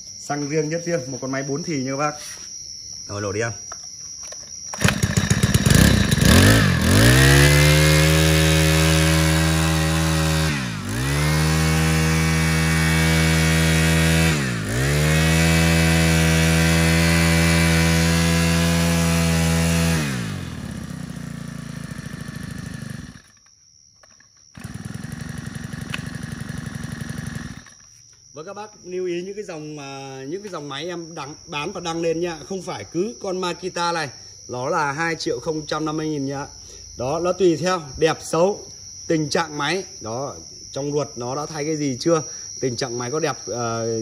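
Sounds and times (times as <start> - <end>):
brush cutter engine revving: 4.7 - 23.4, 24.5 - 27.9.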